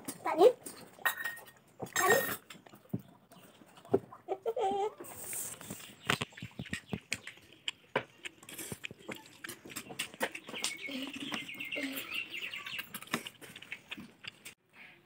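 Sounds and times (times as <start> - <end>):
hen clucking: 3.6 - 13.0.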